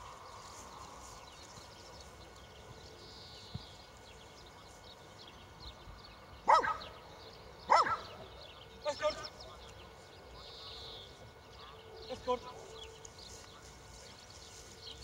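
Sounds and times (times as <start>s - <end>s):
dog barking: 6.4s - 6.9s, 7.7s - 8.2s.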